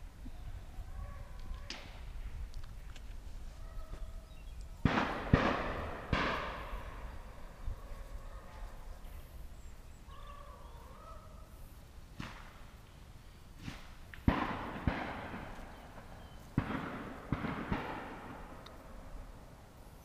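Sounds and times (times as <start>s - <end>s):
shotgun shots echoing: 4.8s - 7.4s, 14.2s - 19.1s.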